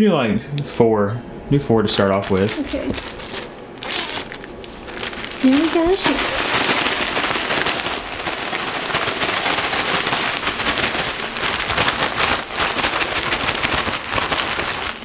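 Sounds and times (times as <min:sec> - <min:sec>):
plastic bag crackling while shaken: 0:01.8 - 0:15.0.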